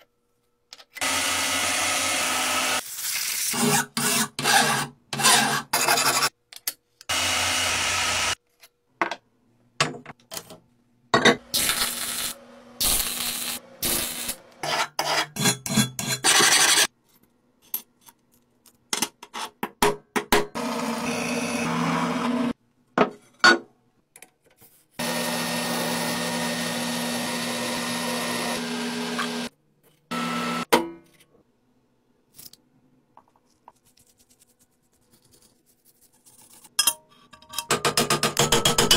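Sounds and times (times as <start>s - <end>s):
steel being filed and cut: 3.5s - 6.3s, 11.6s - 16.9s
machine cutting with low hum: 25.0s - 29.5s, 30.1s - 30.7s.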